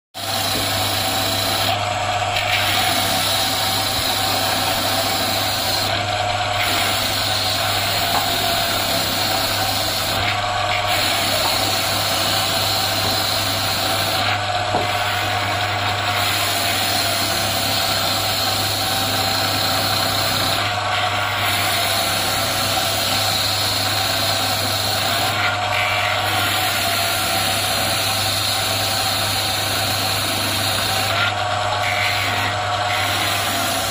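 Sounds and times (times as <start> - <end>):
motor hum: 0.2 - 22.2
cutter hissing into wood: 0.2 - 33.9.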